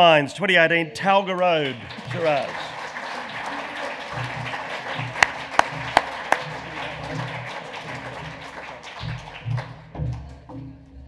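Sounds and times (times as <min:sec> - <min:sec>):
audience applauding: 0:01.5 - 0:09.8
background music: 0:01.8 - 0:11.0.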